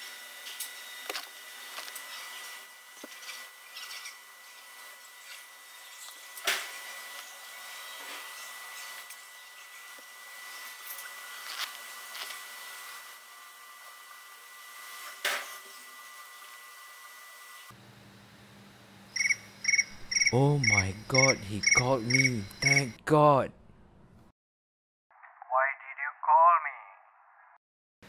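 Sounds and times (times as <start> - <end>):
low hum: 19.8 - 24.3.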